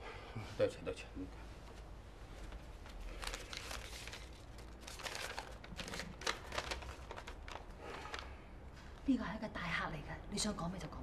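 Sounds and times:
paper crinkling: 0:02.5 - 0:08.4.

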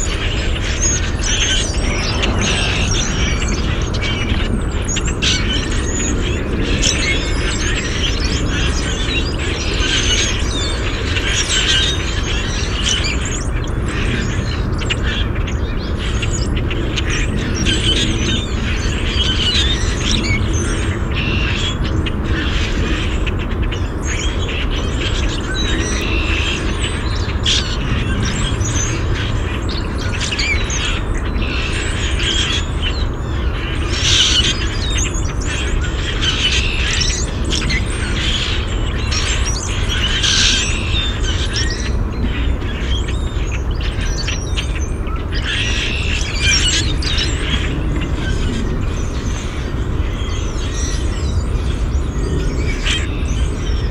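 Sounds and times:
low rumble: 0:00.0 - 0:06.8
flock of birds calling: 0:00.0 - 0:53.9.

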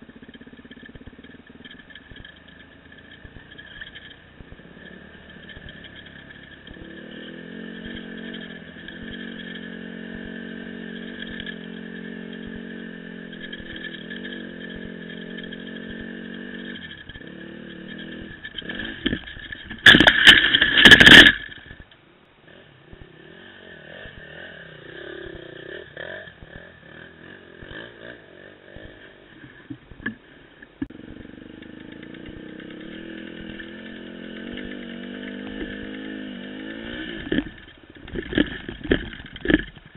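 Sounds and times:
dirt bike engine running: 0:00.0 - 0:39.9
loud scraping clatter: 0:00.2 - 0:21.9, 0:31.0 - 0:39.9.

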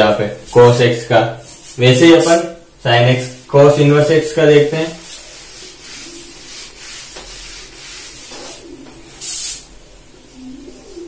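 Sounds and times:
marker stroke on whiteboard: 0:04.8 - 0:08.6
eraser rubbing whiteboard: 0:04.8 - 0:09.7.

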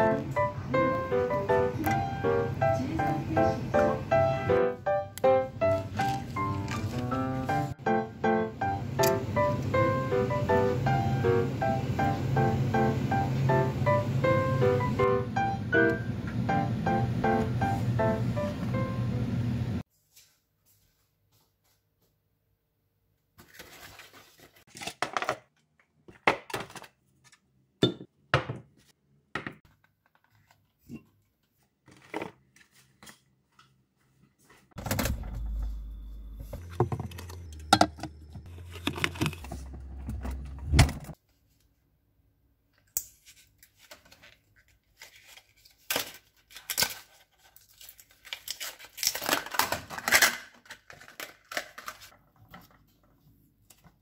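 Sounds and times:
packaging rustling and tearing: 0:23.4 - 0:25.0, 0:38.5 - 0:39.9, 0:43.2 - 0:52.2
low rumble: 0:34.8 - 0:41.0.

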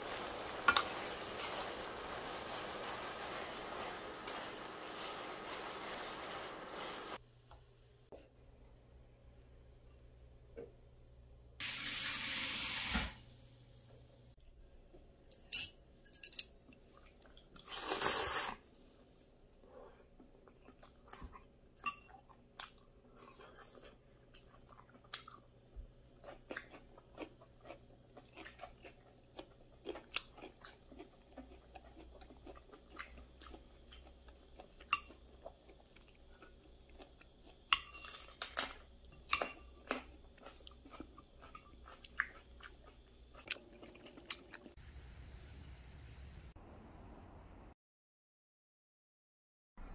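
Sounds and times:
chewing noodles: 0:22.1 - 0:25.5, 0:26.1 - 0:38.8, 0:39.5 - 0:44.8.

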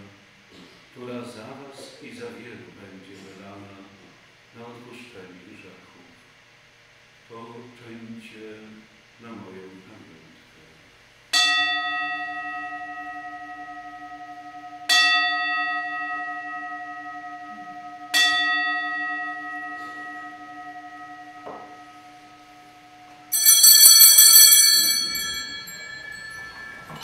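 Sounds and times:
bell strokes ringing: 0:11.4 - 0:27.0
small bells jingling: 0:23.3 - 0:27.0.

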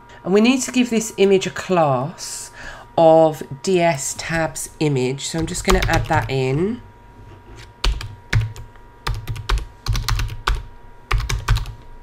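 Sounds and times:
computer keyboard typing: 0:05.4 - 0:06.4, 0:07.8 - 0:11.8.

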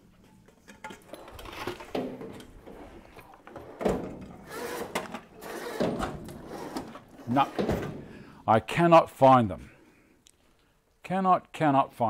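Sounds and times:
objects knocking and clattering: 0:00.2 - 0:08.1.

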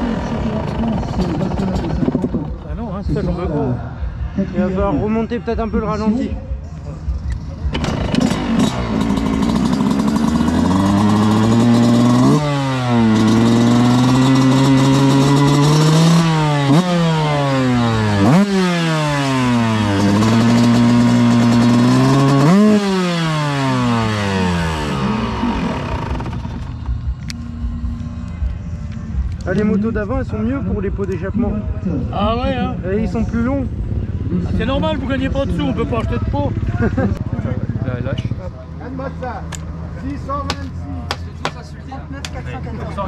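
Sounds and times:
motorbike engine revving: 0:00.0 - 0:02.9, 0:07.1 - 0:29.2, 0:32.8 - 0:41.6.

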